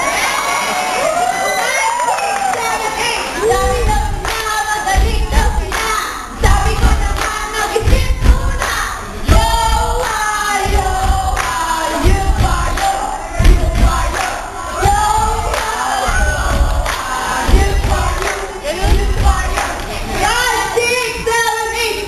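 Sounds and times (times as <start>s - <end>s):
group singing a cheer chant: 3.3s - 20.8s
heavy low thumps: 3.4s - 21.3s.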